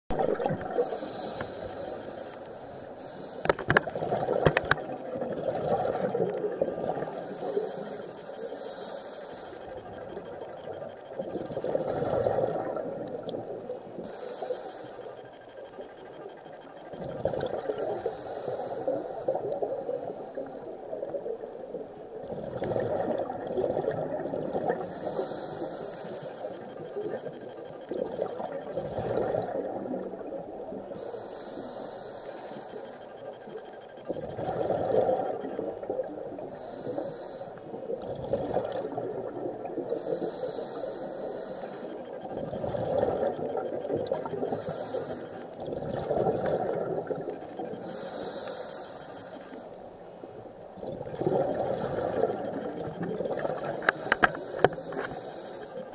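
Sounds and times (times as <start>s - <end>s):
regulator hissing inhale: 0.7s - 3.8s, 7.0s - 10.1s, 12.6s - 16.4s, 17.8s - 20.8s, 24.7s - 28.0s, 30.9s - 34.2s, 36.3s - 38.0s, 39.8s - 42.4s, 44.3s - 45.6s, 47.2s - 50.4s, 53.6s - 55.9s
bubbling exhale: 22.3s - 27.2s, 34.1s - 49.6s, 50.8s - 55.9s.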